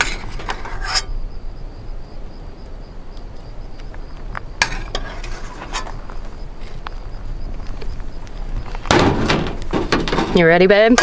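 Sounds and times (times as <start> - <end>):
metal spoon scraping in a pan: 0.0 - 1.1, 4.6 - 6.0.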